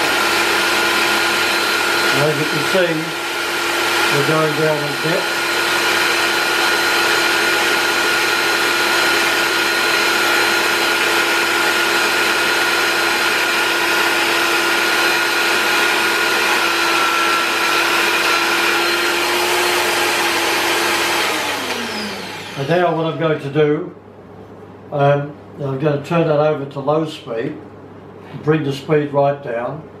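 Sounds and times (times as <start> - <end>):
drill press motor whine: 0.0 - 23.2.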